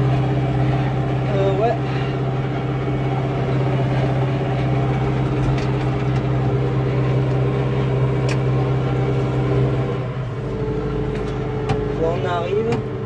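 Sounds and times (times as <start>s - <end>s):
tractor diesel engine droning: 0.0s - 13.0s.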